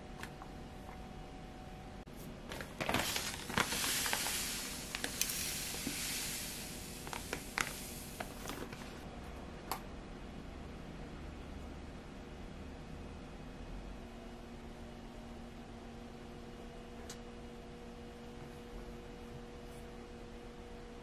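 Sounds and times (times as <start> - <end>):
plastic bag crinkling: 2.5 - 9.0
flour pouring into bowl: 2.6 - 8.8.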